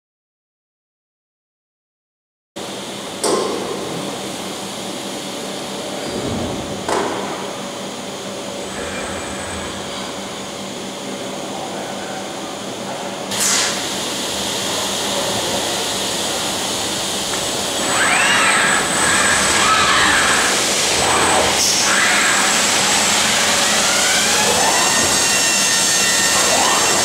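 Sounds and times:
machine hum: 2.6 - 27.0
grinding head whining: 5.8 - 11.2, 13.8 - 27.0
air extraction noise: 13.2 - 27.0.

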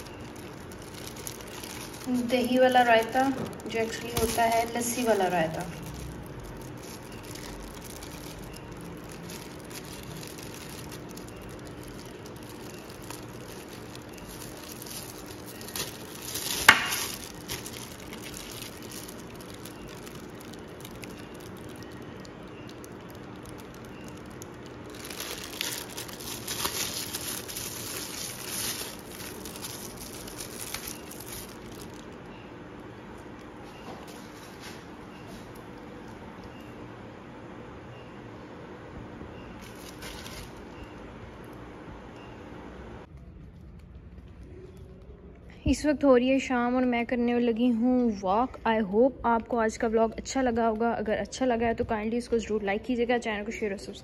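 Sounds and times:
plastic bag crinkling: 0.0 - 36.7, 39.5 - 41.6.

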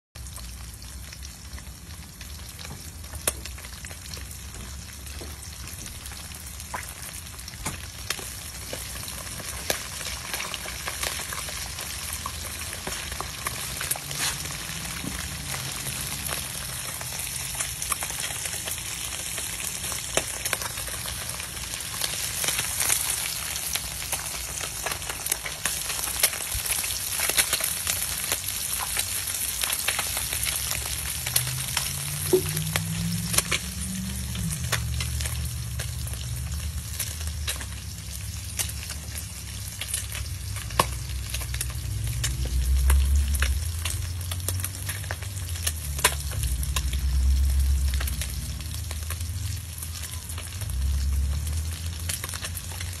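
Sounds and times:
fish sizzling in hot oil: 0.2 - 53.0
crackling oil pops: 7.6 - 8.9.

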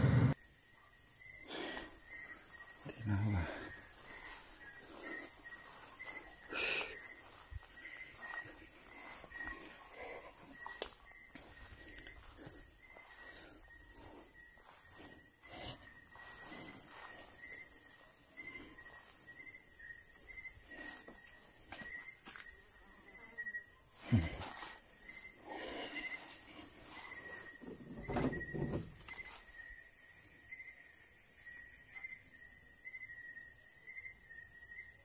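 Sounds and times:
crickets trilling: 0.0 - 35.0
short insect chirp: 0.0 - 35.0
footsteps through grass: 3.5 - 15.3, 16.0 - 17.9.

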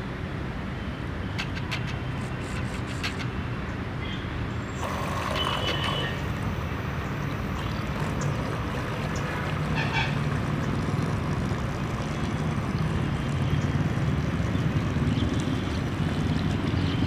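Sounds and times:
low outdoor rumble: 4.8 - 17.0
small motor and propeller churning water: 4.8 - 17.0.

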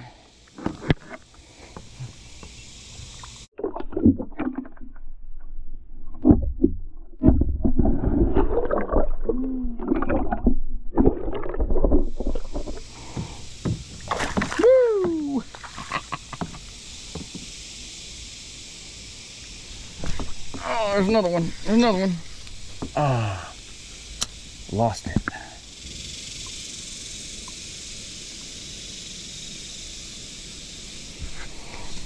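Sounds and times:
open air hiss: 0.0 - 3.5, 11.8 - 32.0.

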